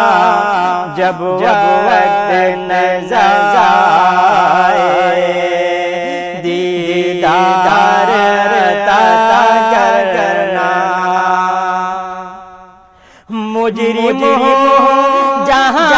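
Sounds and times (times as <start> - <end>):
man singing melismatic lines: 0.0 - 15.9.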